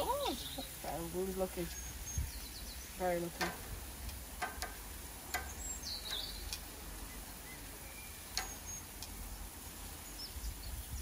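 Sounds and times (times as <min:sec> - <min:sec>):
birds chirping: 0:00.0 - 0:11.0
meat sizzling on a grill: 0:00.0 - 0:11.0
metal tongs clicking on grate: 0:03.3 - 0:06.7, 0:08.3 - 0:09.2.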